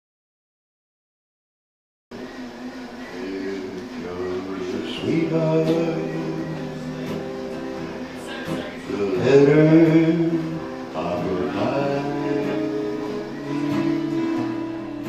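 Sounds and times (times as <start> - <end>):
electric and acoustic guitars: 2.2 - 15.0
man singing: 3.1 - 15.0.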